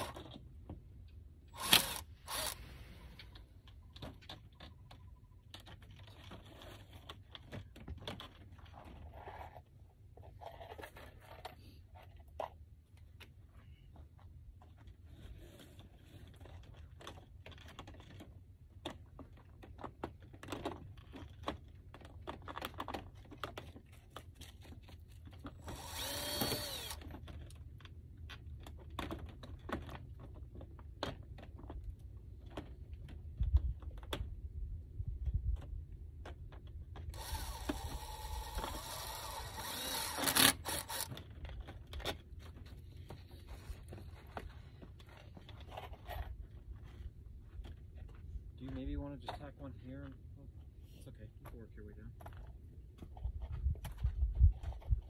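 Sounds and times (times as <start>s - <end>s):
cordless drill driving screws: 0.0s - 0.3s, 1.5s - 2.9s, 25.5s - 27.3s, 37.1s - 41.3s.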